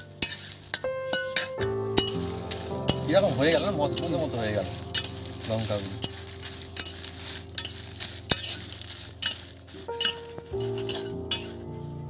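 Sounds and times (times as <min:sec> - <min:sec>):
metal spatula scraping a pan: 0:00.0 - 0:11.6
dry chillies rustling: 0:00.0 - 0:12.0.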